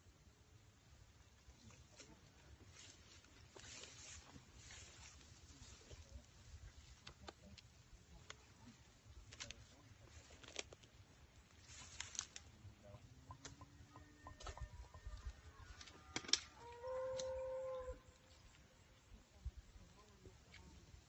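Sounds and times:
grass rustling against phone: 1.6s - 13.6s
animal call: 13.8s - 18.1s.

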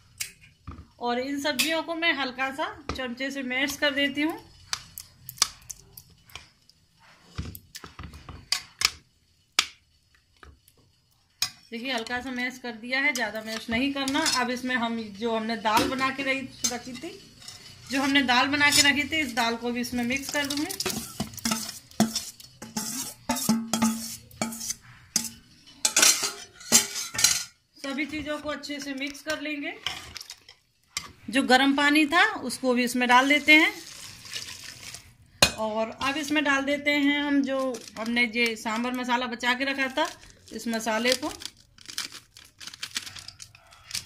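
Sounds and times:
metal spoon tapping pot: 11.4s - 29.5s
spoon scraping pot: 11.4s - 31.4s.

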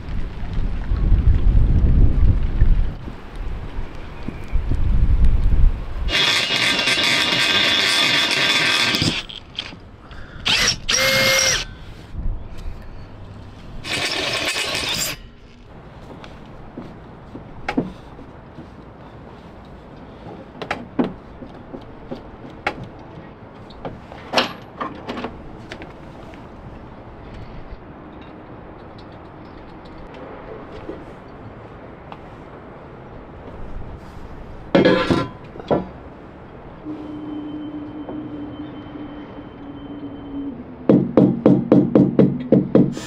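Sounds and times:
power drill boring into metal: 6.1s - 9.7s, 10.4s - 11.7s, 13.8s - 15.3s.

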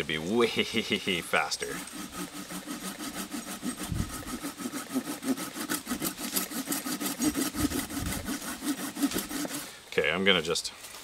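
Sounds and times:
folding saw rasping through wood: 1.4s - 9.8s.

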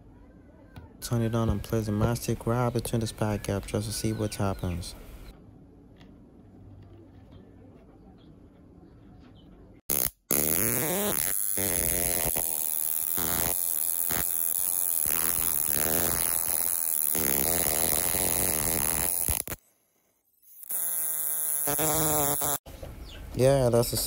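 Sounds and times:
electric arc buzzing: 9.9s - 19.7s, 20.4s - 22.7s.

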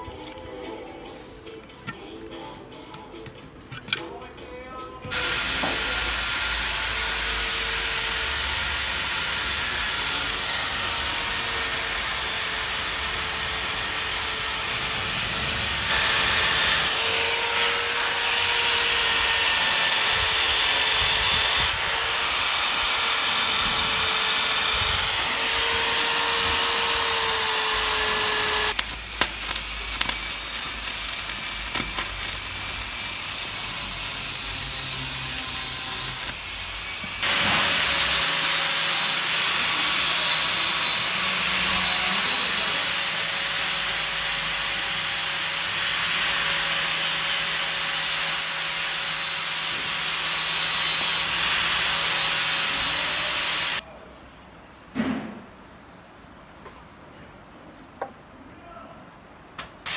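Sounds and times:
angle grinder wire brush scrubbing: 0.0s - 4.3s
angle grinder whining on metal: 5.1s - 53.8s
welding crackle: 28.7s - 36.4s.

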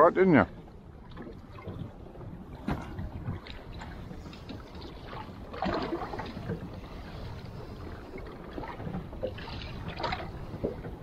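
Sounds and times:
low constant rumble: 0.0s - 11.0s
water lapping around boat: 0.0s - 11.0s
wind: 0.0s - 11.0s.

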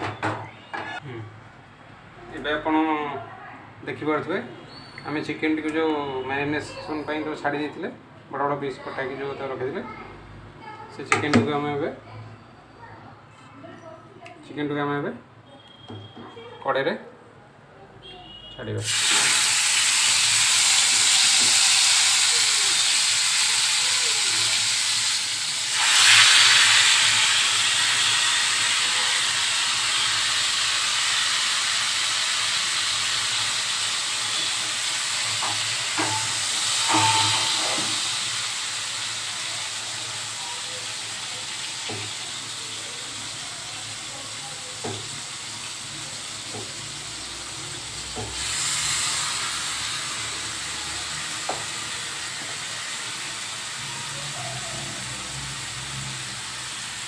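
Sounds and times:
chicken sizzling in hot oil: 18.8s - 57.0s.

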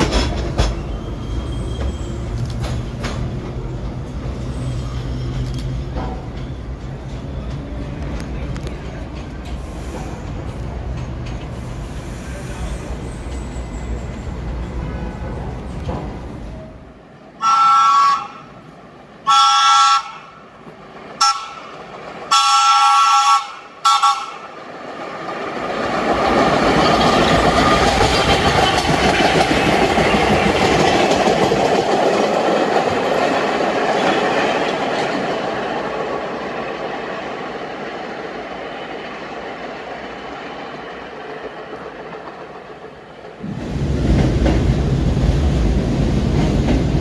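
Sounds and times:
train rumbling past: 0.0s - 47.0s
train horn blasts: 17.4s - 18.5s, 19.2s - 20.3s, 21.2s - 21.7s, 22.3s - 24.4s.

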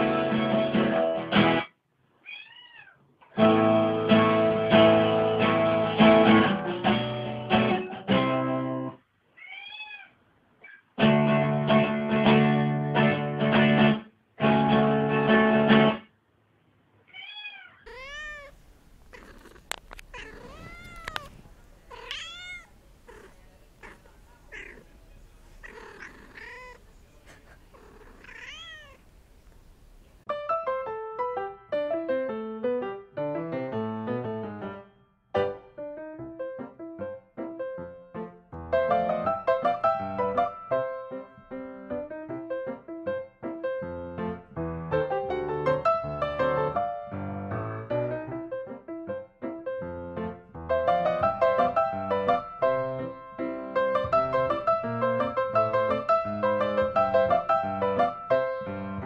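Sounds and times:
cat meowing: 1.6s - 3.1s, 9.3s - 10.8s, 17.0s - 25.0s, 25.6s - 29.1s.

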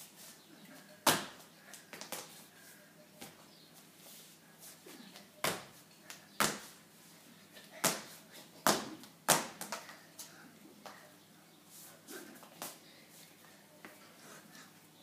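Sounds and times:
skipping rope slaps on tile: 7.8s - 10.0s.

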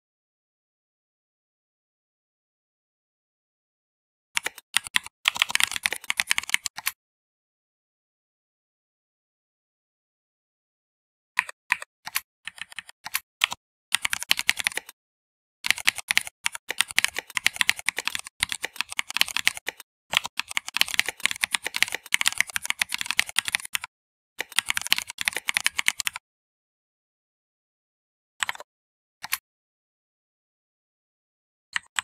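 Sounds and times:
computer keyboard typing: 4.4s - 7.0s, 11.4s - 15.0s, 15.6s - 26.2s, 28.4s - 28.6s.

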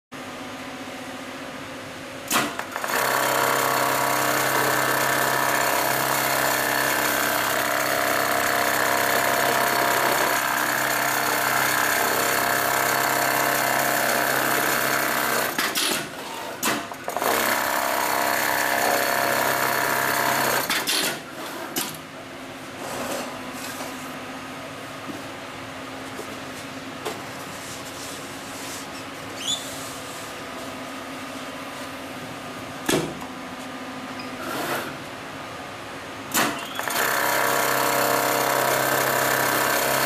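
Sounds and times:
sewing machine rapid chatter: 2.6s - 15.9s, 17.0s - 20.9s, 36.6s - 40.0s.

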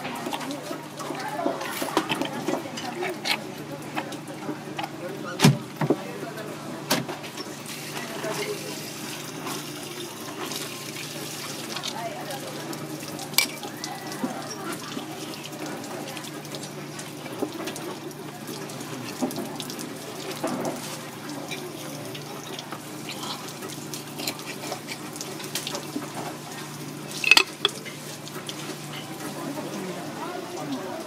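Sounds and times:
tap water splashing on wood: 15.7s - 22.8s
knife and shell clicks: 27.2s - 27.8s.

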